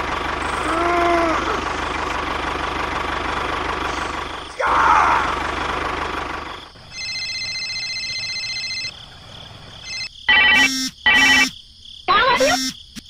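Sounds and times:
engine-like rumble: 0:00.0 - 0:10.1
mobile phone ringtone: 0:06.9 - 0:08.9, 0:09.8 - 0:11.5
steady electronic ringing tone: 0:06.9 - 0:08.9, 0:09.8 - 0:11.6.

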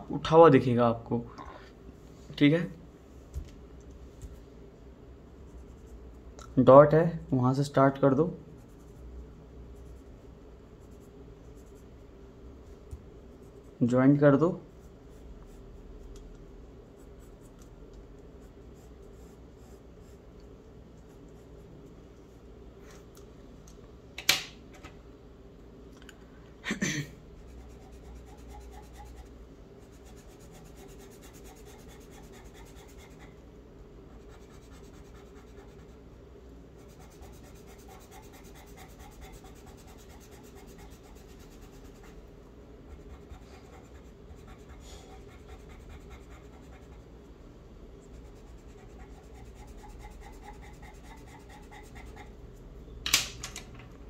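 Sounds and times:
pencil scratching on paper: 0:05.5 - 0:06.0, 0:10.7 - 0:11.9, 0:16.9 - 0:20.3, 0:27.4 - 0:33.4, 0:34.1 - 0:36.0, 0:36.8 - 0:42.2, 0:42.9 - 0:47.1, 0:48.0 - 0:52.4.

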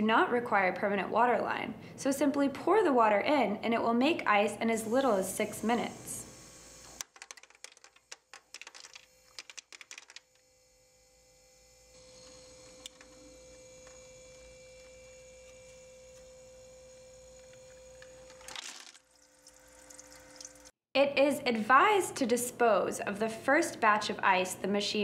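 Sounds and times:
ice cubes clattering: 0:07.0 - 0:10.2, 0:18.2 - 0:19.2
ice maker motor hum: 0:10.8 - 0:20.7.

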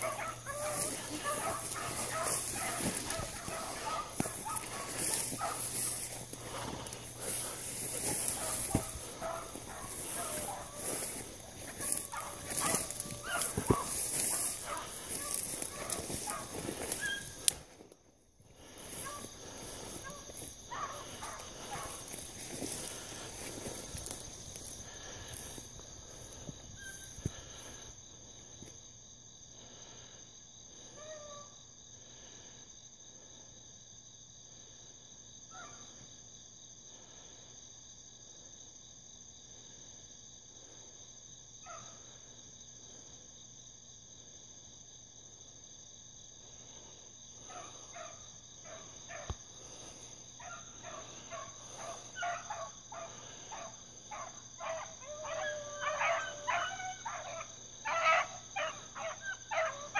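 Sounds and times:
distant hounds barking: 0:00.0 - 0:17.7, 0:18.6 - 0:27.8, 0:41.6 - 0:42.2, 0:47.4 - 0:59.9
night insects chorus: 0:00.0 - 0:59.9.

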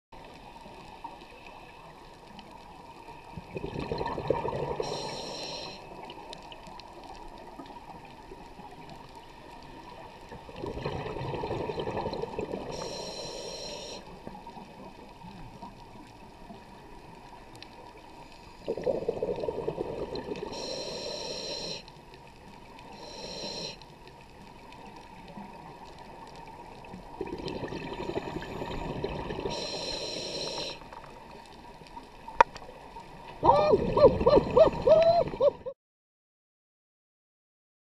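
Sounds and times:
steady underwater hiss: 0:00.2 - 0:35.5
exhaled bubbles underwater: 0:03.2 - 0:09.1, 0:09.8 - 0:13.1, 0:18.6 - 0:20.7, 0:24.7 - 0:31.3, 0:33.2 - 0:35.7
regulator hiss: 0:04.8 - 0:06.0, 0:12.7 - 0:14.2, 0:20.4 - 0:21.9, 0:22.8 - 0:24.0, 0:29.4 - 0:31.0.

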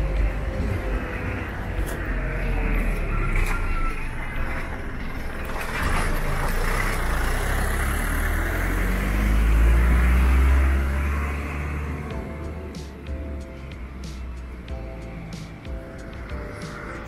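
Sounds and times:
road traffic: 0:00.0 - 0:17.0
truck engine rumbling: 0:00.0 - 0:17.0.

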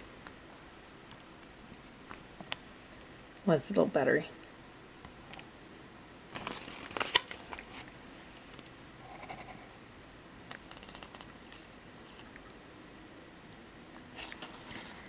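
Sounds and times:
paper and cardboard rustling: 0:06.4 - 0:07.9, 0:14.2 - 0:15.0.

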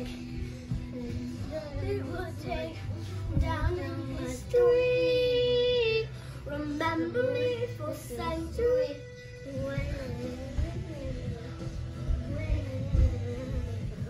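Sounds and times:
steady bass line: 0:09.4 - 0:14.0.

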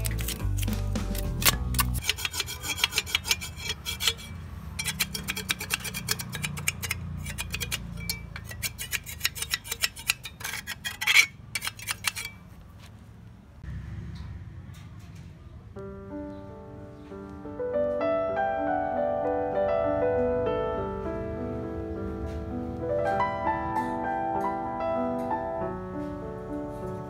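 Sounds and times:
background music: 0:00.0 - 0:02.1
rasping scrapes on cement: 0:00.0 - 0:12.5.

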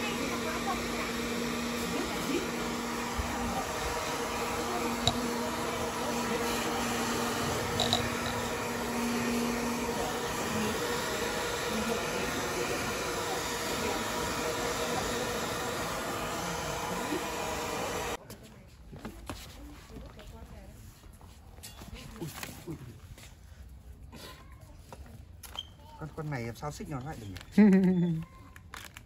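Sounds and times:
hair dryer running: 0:00.0 - 0:18.2.

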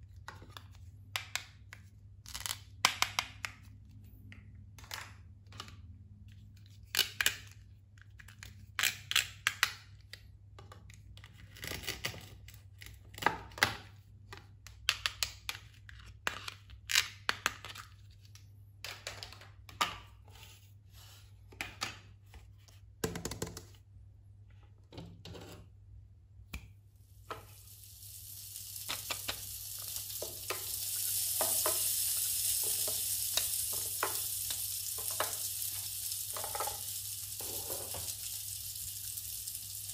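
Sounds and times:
steady sizzling hiss: 0:26.8 - 0:39.9.

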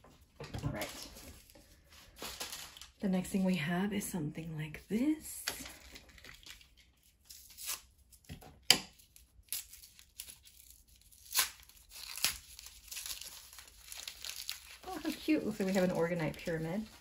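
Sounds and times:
packaging tearing and crinkling: 0:00.7 - 0:03.0, 0:05.7 - 0:08.3, 0:08.9 - 0:17.0.

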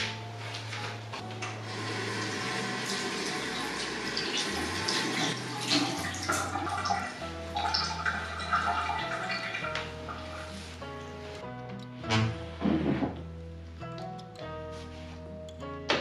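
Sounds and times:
soft background music: 0:00.0 - 0:16.0
water running from faucet: 0:01.4 - 0:10.5.

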